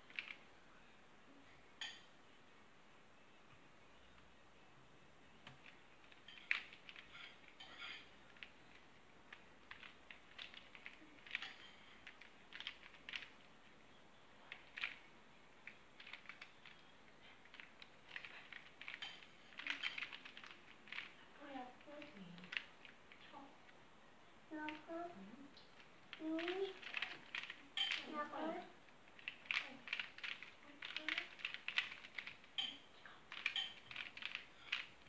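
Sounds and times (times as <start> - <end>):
plastic puzzle clicking and clacking: 0.0 - 0.4, 5.4 - 13.5, 14.5 - 21.2, 21.8 - 23.3, 25.8 - 35.0.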